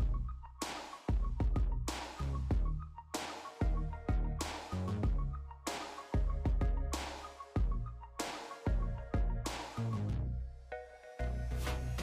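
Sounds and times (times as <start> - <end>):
background music with deep bass: 0.0 - 12.0.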